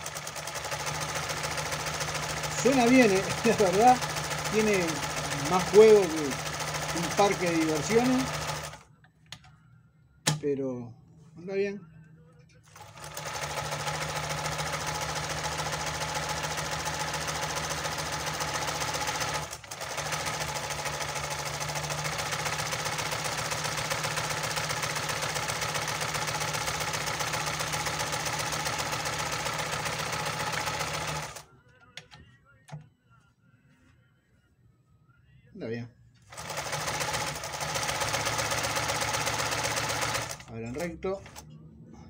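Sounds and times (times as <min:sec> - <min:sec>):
sewing machine running: 0:00.0 - 0:08.8, 0:12.7 - 0:31.5, 0:36.3 - 0:41.4.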